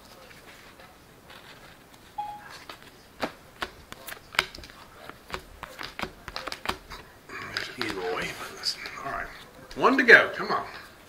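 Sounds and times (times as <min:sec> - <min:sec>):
cards clicking and snapping: 0:00.2 - 0:09.9.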